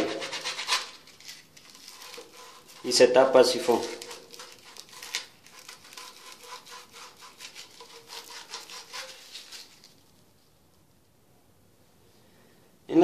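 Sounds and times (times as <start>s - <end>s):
sandpaper rubbing on plastic pipe: 0.0s - 10.0s.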